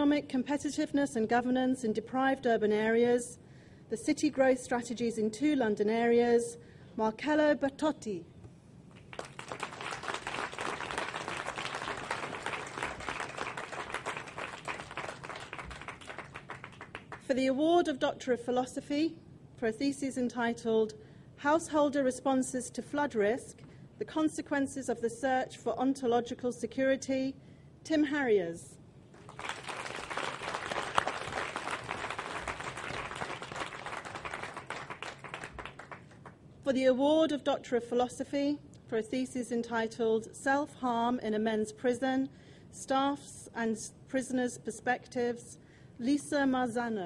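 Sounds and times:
audience applauding: 0:09.0 - 0:17.2, 0:29.2 - 0:36.2.

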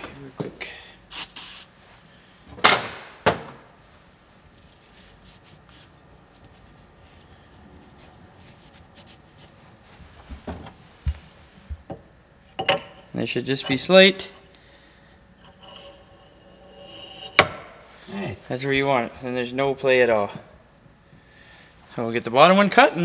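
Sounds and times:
aerosol spray can hissing: 0:01.1 - 0:01.7.

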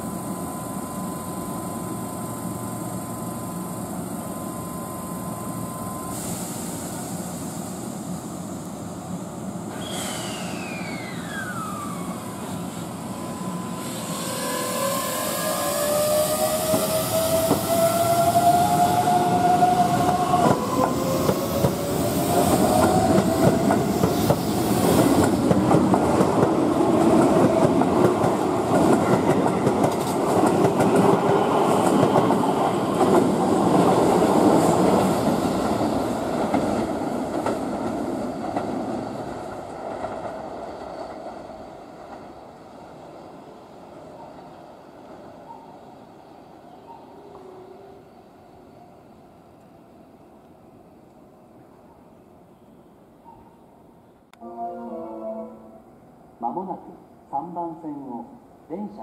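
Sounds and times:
train wheels rumbling on rails: 0:06.0 - 0:43.6.

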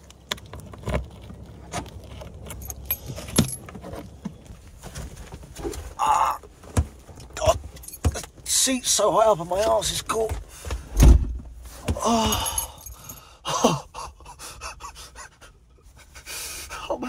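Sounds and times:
knocks and rustling: 0:00.3 - 0:08.5
keys jangling: 0:02.2 - 0:03.7, 0:07.7 - 0:08.3, 0:12.1 - 0:13.2
car door swinging open: 0:10.9 - 0:12.0.

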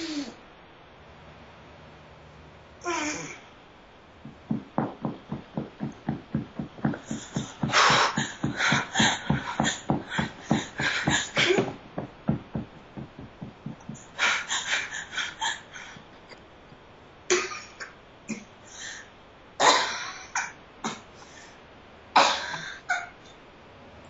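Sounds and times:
woman breathing rapidly: 0:04.2 - 0:16.2, 0:18.7 - 0:19.1, 0:21.1 - 0:21.6
woman coughing and gasping: 0:19.6 - 0:21.1, 0:22.2 - 0:23.1.

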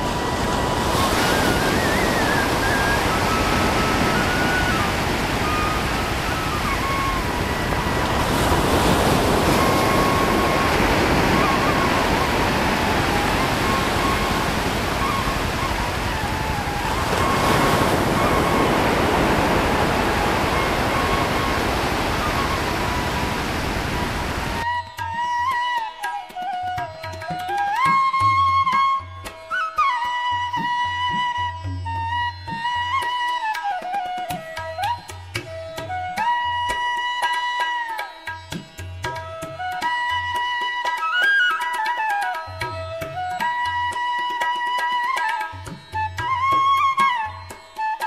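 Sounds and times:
waves breaking on a beach: 0:00.0 - 0:24.6.

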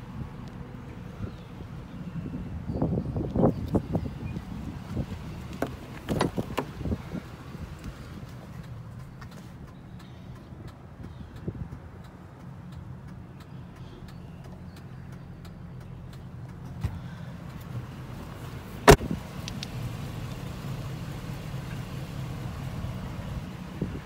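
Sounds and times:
car engine idling: 0:00.0 - 0:24.0
car door slamming: 0:05.6 - 0:07.0, 0:18.8 - 0:19.2.

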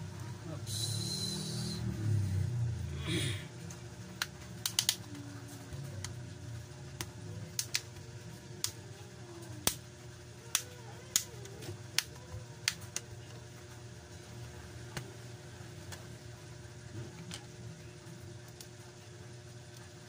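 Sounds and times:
plastic clips snapping loose: 0:04.2 - 0:05.0.

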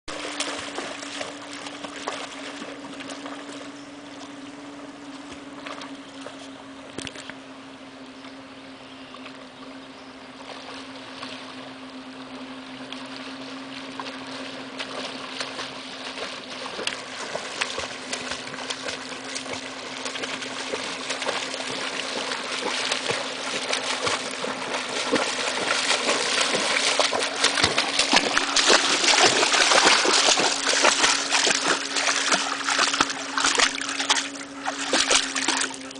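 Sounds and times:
dog splashing through water: 0:00.1 - 0:03.6, 0:13.1 - 0:35.9
steady low hum: 0:00.1 - 0:35.9.

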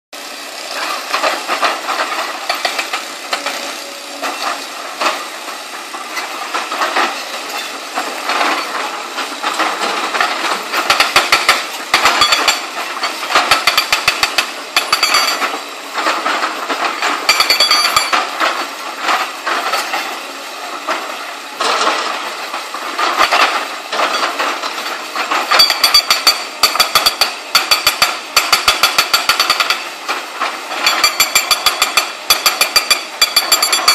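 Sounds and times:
excavator engine running: 0:00.2 - 0:33.9
hydraulic breaker hammering rock: 0:00.6 - 0:20.2, 0:20.8 - 0:33.9.

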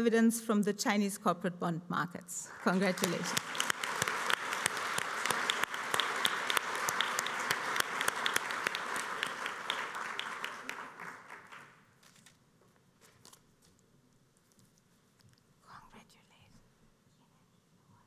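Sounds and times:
audience applauding: 0:02.5 - 0:11.8.

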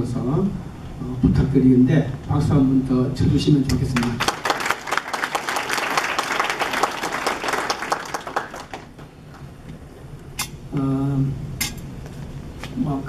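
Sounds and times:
audience applause: 0:04.0 - 0:09.1.

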